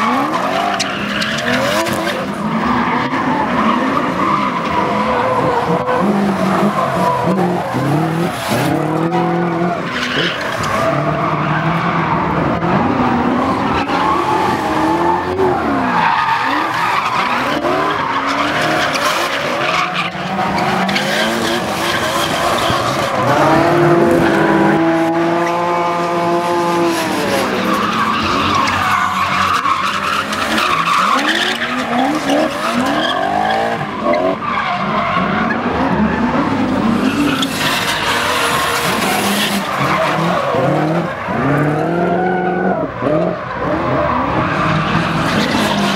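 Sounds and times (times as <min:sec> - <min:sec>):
car engines revving: 0:00.0 - 0:45.9.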